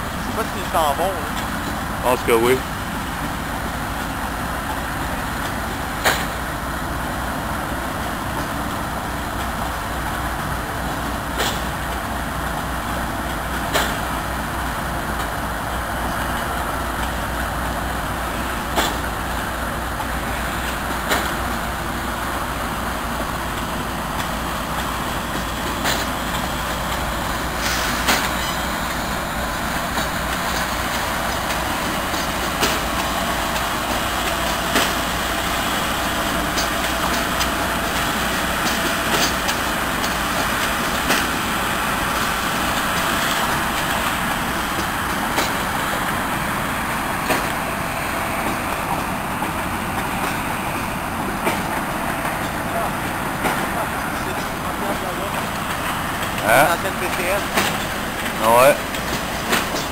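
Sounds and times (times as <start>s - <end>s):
heavy vehicles rumbling: 0.0s - 59.9s.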